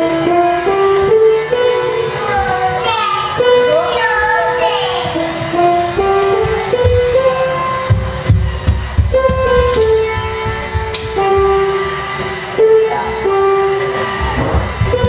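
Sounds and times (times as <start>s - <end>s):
background music held notes: 0.0s - 15.0s
low thumps: 5.0s - 12.4s, 14.1s - 15.0s.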